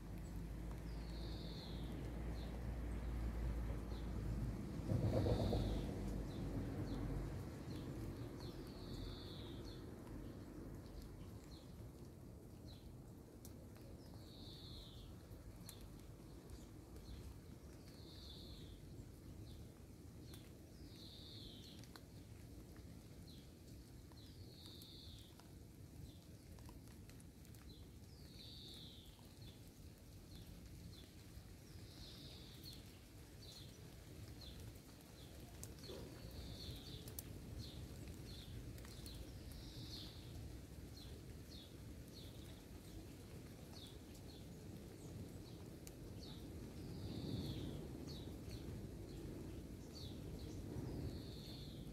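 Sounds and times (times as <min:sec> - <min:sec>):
low background rumble: 0:00.0 - 0:13.1.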